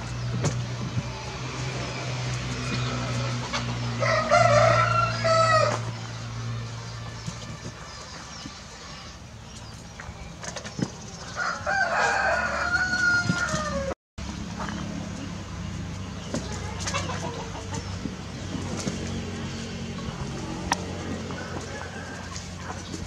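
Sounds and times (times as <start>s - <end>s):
rooster crowing: 4.0s - 5.8s, 11.4s - 14.0s, 21.1s - 22.9s.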